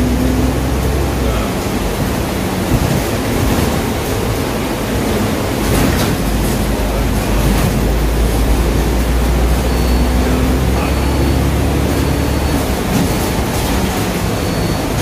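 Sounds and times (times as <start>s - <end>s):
bus engine and road rumble: 0.0s - 15.0s.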